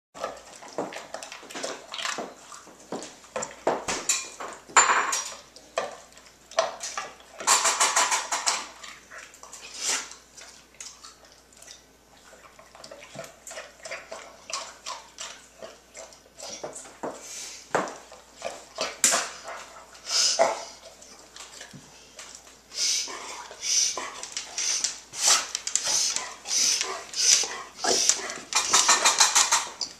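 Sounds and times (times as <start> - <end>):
dog crunching dry food: 23.4 - 29.9
food rattling in metal bowl: 28.5 - 29.8.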